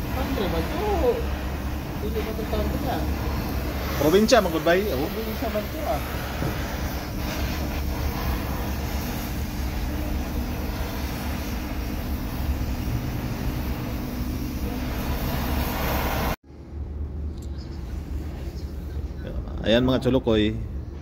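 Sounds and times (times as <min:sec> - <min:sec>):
welder arc crackling: 0:00.0 - 0:16.4
steady low hum: 0:00.0 - 0:21.0.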